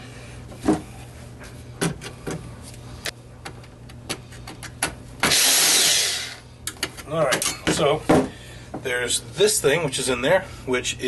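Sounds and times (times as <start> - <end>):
drill-driver spinning a screw: 5.2 - 6.4
clicks and taps of tools: 6.7 - 7.8.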